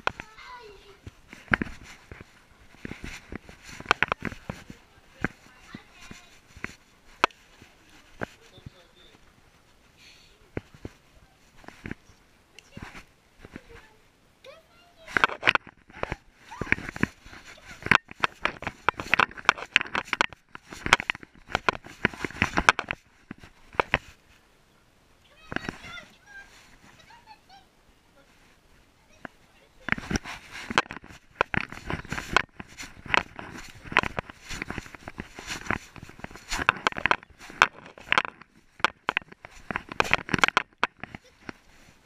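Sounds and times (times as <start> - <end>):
camera scraping and knocking: 0.0 - 8.8, 10.5 - 14.0, 15.0 - 24.2, 25.4 - 27.2, 29.1 - 42.0
camera mount rattling: 16.7 - 24.1.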